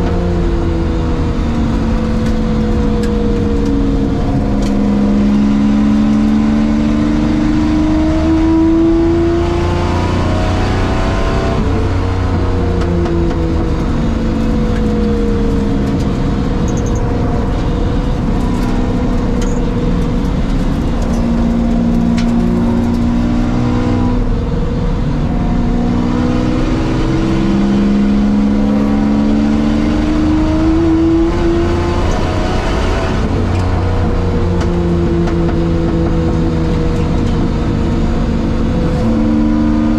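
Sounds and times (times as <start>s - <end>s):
race car engine accelerating: 0.0s - 39.9s
road and wind noise: 0.0s - 39.9s.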